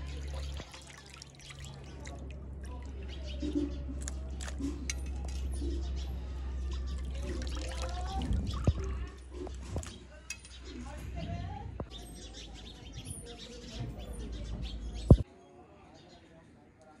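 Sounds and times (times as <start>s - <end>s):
hands splashing in water: 0.0s - 3.1s, 6.8s - 10.0s.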